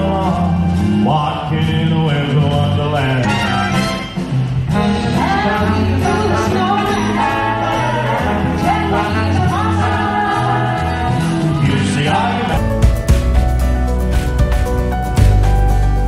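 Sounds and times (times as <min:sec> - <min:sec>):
live orchestra playing: 0:00.0 - 0:16.0
person singing: 0:04.7 - 0:12.9.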